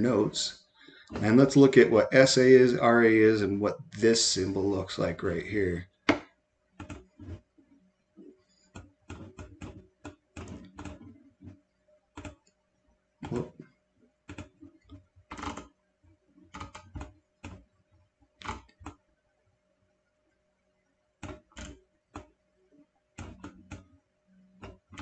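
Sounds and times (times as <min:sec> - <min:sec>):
keyboard and mouse clicking: 0:06.8 - 0:07.4, 0:08.7 - 0:11.6, 0:12.2 - 0:12.5, 0:14.3 - 0:15.7, 0:16.5 - 0:17.6, 0:21.2 - 0:22.3, 0:23.2 - 0:23.9, 0:24.6 - 0:25.0.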